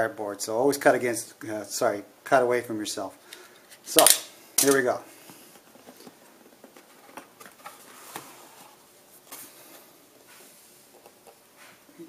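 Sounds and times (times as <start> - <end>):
cardboard scraping and rustling: 6.8 - 9.6.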